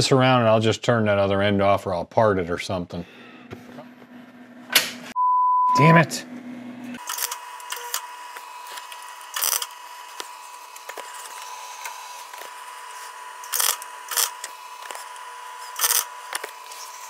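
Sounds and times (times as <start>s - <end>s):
arc welding crackle and hiss: 7.0s - 17.0s.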